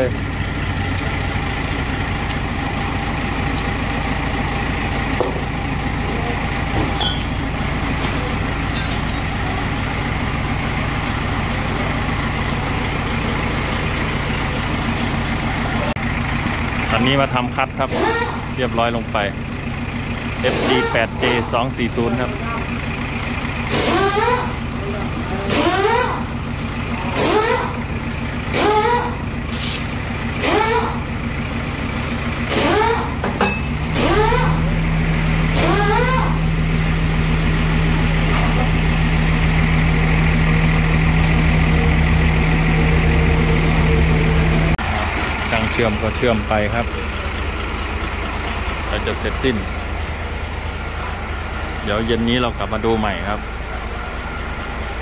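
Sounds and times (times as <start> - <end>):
diesel engine running: 0.0 - 55.0
rising whine: 37.7 - 48.2.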